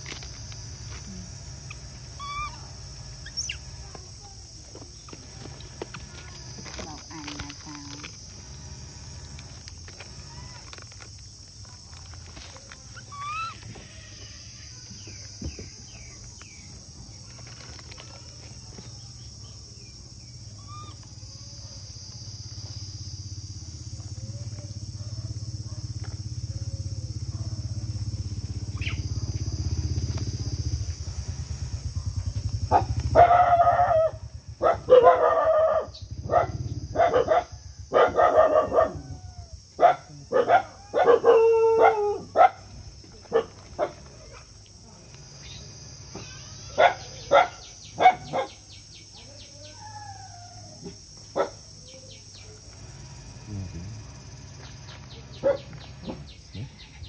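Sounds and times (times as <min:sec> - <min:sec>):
faint chirps: 0:00.2 - 0:23.4, 0:44.1 - 0:57.0
loud animal calls: 0:01.5 - 0:03.8, 0:12.4 - 0:15.1, 0:20.5 - 0:21.2.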